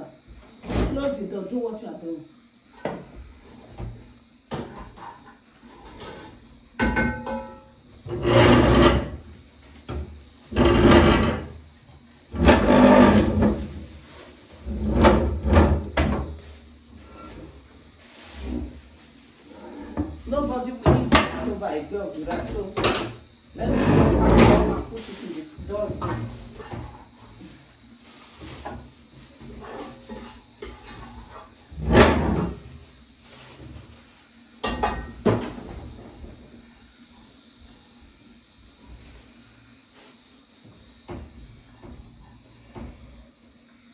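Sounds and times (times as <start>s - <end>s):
chair legs scraping on floor: 2.8s - 6.4s, 8.0s - 11.6s, 12.3s - 21.6s, 22.2s - 34.0s.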